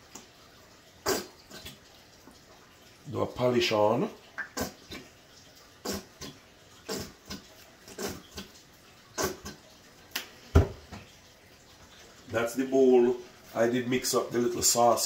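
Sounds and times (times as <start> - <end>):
bottle thumping on counter: 10.5 - 11.0.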